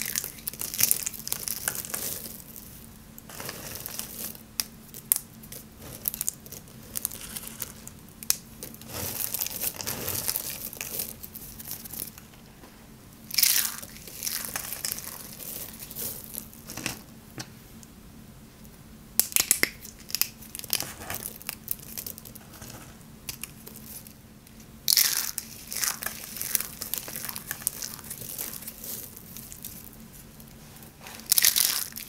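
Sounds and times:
pieces snapping: 0.0 - 2.6, 3.2 - 12.2, 19.2 - 22.4, 23.3 - 23.8, 24.9 - 29.9, 31.2 - 32.0
soap shavings crunching: 0.0 - 12.2, 13.3 - 16.5, 24.9 - 30.0, 31.2 - 32.0.

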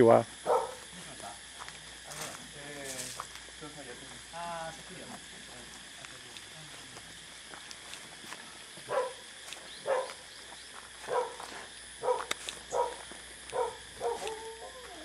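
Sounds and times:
dog barking: 0.4 - 0.9, 8.9 - 9.2, 9.8 - 10.2, 11.0 - 15.0.

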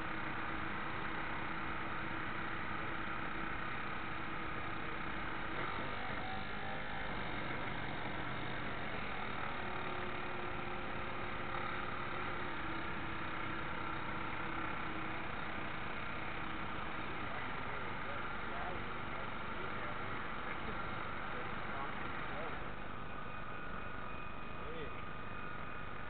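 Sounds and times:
small motor whine: 0.0 - 26.0.

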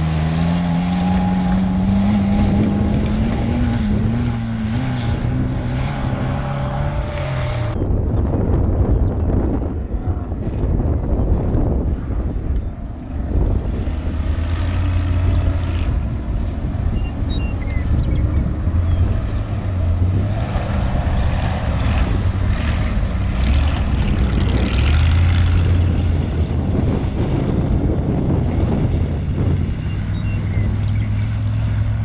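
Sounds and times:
engine droning at speed: 0.0 - 32.0.

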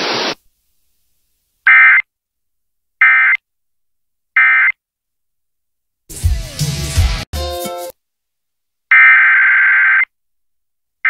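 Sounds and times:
hiss: 0.0 - 0.4.

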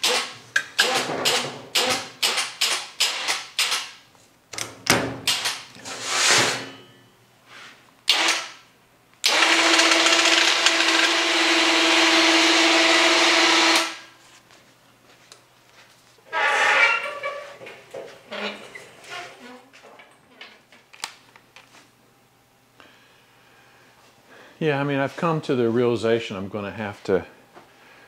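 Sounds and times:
electric hoist motor whining: 9.2 - 14.0.

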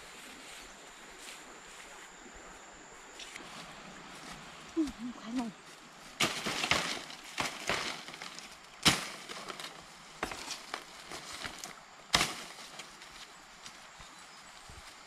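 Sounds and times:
leaves rustling: 0.0 - 15.0
plant stems snapping: 6.2 - 12.9.

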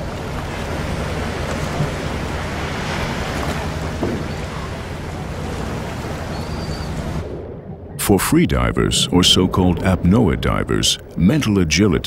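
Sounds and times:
sea water sloshing and splashing: 0.0 - 8.0.

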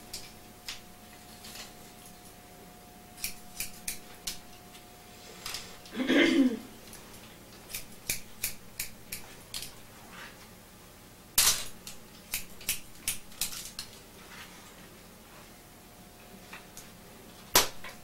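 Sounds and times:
scissors snipping hair: 3.2 - 4.5, 7.7 - 9.7, 11.8 - 13.9.

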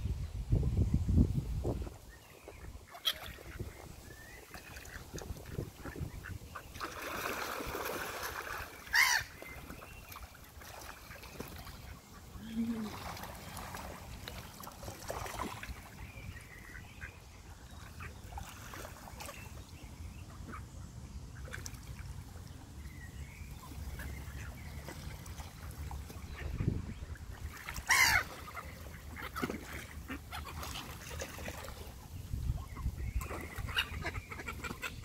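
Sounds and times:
ducks splashing in water: 2.5 - 19.7, 21.4 - 22.7, 23.5 - 35.0
gull calls: 8.9 - 9.4, 27.8 - 28.6
ducks quacking: 26.2 - 31.0, 33.6 - 35.0.

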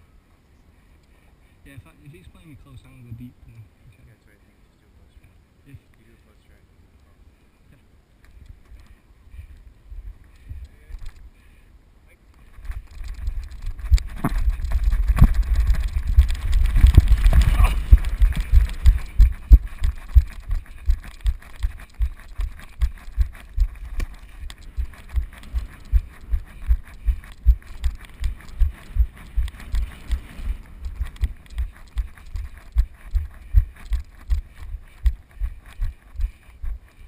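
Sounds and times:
footsteps jogging on grass: 12.5 - 37.0.

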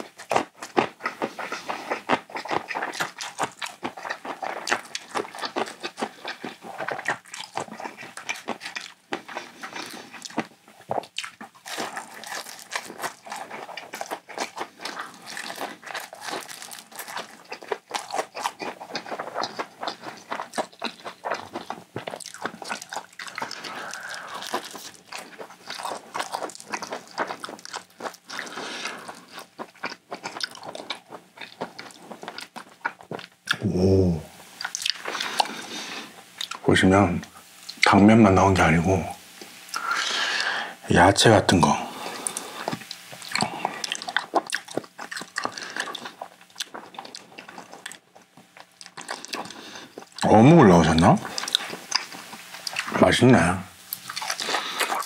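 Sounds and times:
chewing and crunching food: 0.0 - 33.7, 34.4 - 38.7, 39.3 - 55.0.

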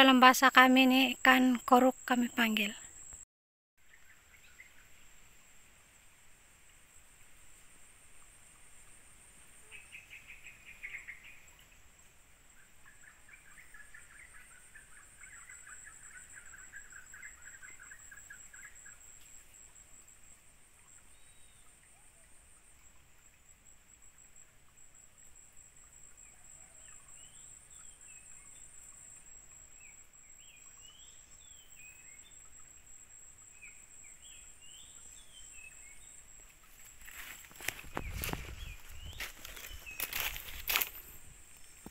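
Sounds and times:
high-pitched insect drone: 35.2 - 41.9
birds calling: 36.6 - 41.9.

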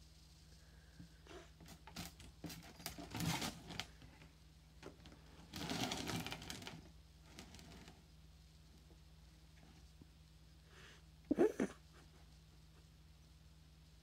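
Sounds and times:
rustling: 0.0 - 10.2
plastic collar scraping cardboard: 1.7 - 3.9, 5.4 - 8.0.

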